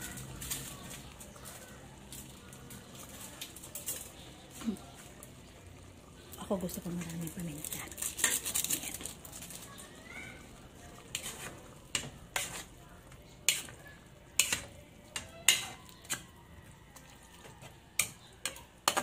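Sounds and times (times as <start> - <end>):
metal turner scraping pot: 7.0 - 9.7, 11.0 - 16.4, 17.4 - 19.0.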